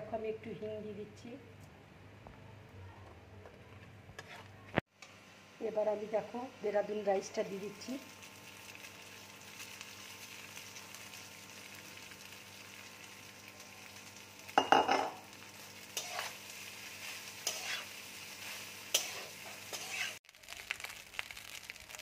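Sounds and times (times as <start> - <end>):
spatula scraping a pan: 4.2 - 4.6, 15.8 - 20.2
rice sizzling in oil: 6.1 - 22.0.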